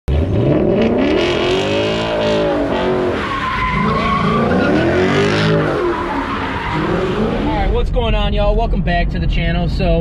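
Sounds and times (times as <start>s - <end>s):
car engine revving: 0.1s - 8.3s
tyres squealing: 2.3s - 7.7s.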